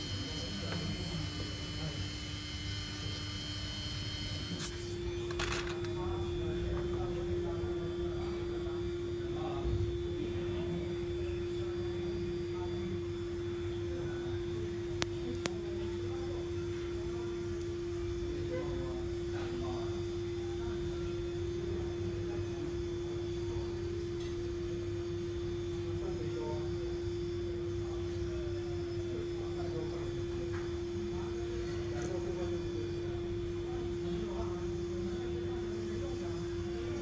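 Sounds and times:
steady humming tone: 0.0 - 37.0.

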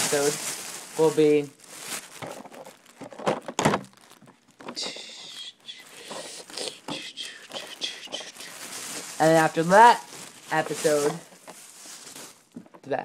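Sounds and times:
packaging crinkling: 0.0 - 12.8
plastic packaging knocks and taps: 12.5 - 12.8.

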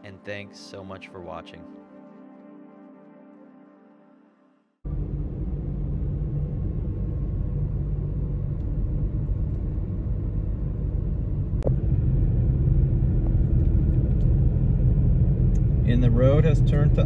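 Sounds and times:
road and engine rumble in cabin: 4.9 - 17.0.

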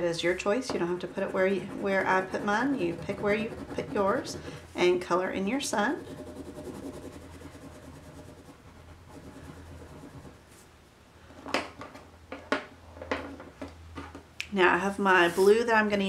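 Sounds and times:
crayon rubbing on paper: 1.0 - 4.6, 5.8 - 10.4.

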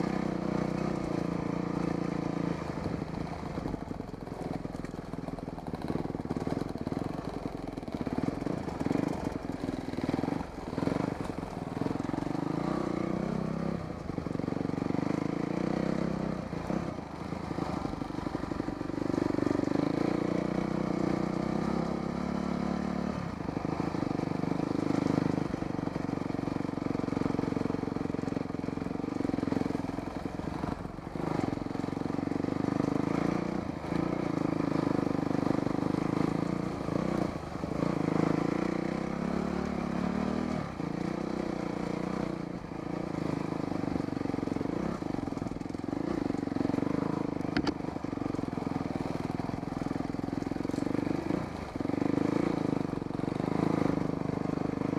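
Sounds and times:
dirt bike engine revving: 35.8 - 45.0, 50.6 - 54.1.

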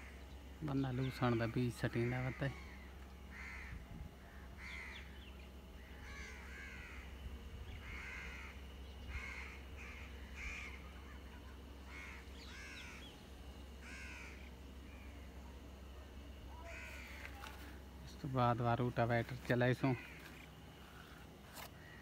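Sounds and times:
low steady rumble: 0.0 - 22.0
crows cawing: 1.0 - 15.4, 16.5 - 17.8, 19.6 - 22.0.

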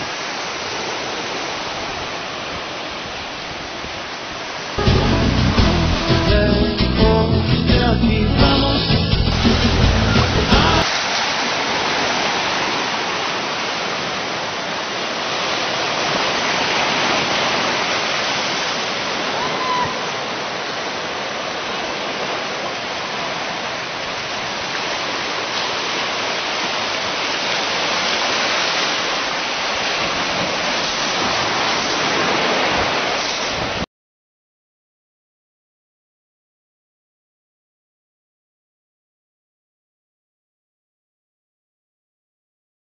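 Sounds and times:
surf washing over rocky shore: 0.0 - 6.3, 8.8 - 33.8.

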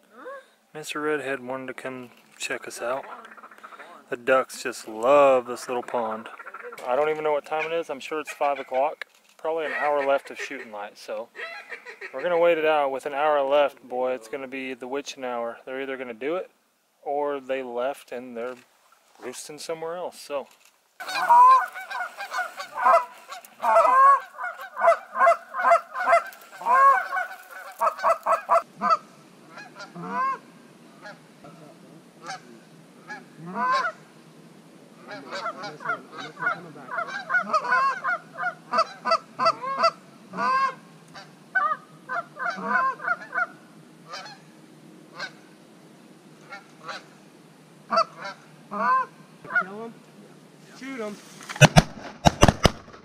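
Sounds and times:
geese honking: 2.8 - 4.1, 5.4 - 12.5, 21.0 - 34.2, 35.0 - 44.5, 45.1 - 45.5, 46.4 - 47.2, 47.9 - 49.8.

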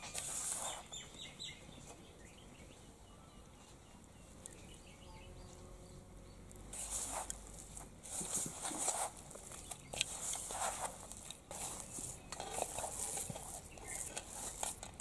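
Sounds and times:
hands rubbing flour in bowl: 0.0 - 0.9, 6.7 - 15.0
faint bird chirps: 0.5 - 6.5.

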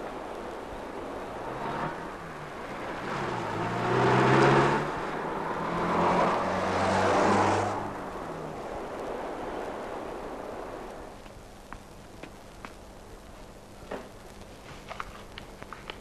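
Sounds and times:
vehicles driving past: 0.0 - 11.1.

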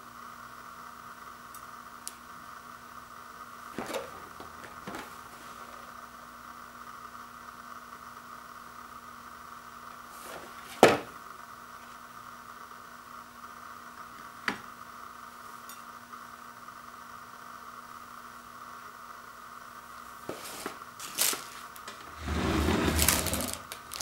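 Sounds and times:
background hiss and hum: 0.0 - 24.0
handling noise: 21.1 - 24.0.

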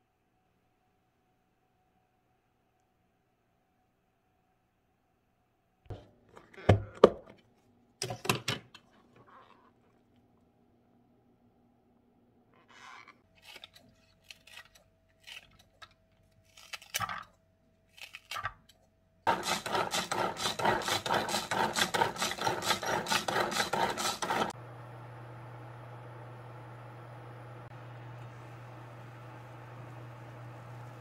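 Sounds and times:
vegetable chopper chopping: 19.3 - 24.5
steady low hum: 24.5 - 31.0.

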